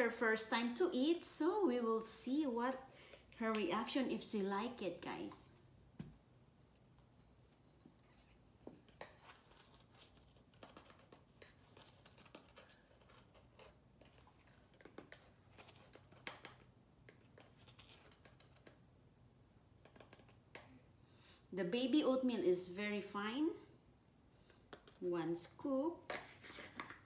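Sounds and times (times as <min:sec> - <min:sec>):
cereal carton rustling: 0:09.0 - 0:18.7.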